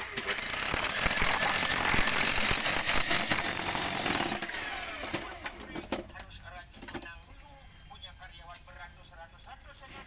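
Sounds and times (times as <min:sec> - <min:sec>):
power tool rattling and whining: 0:00.0 - 0:06.0.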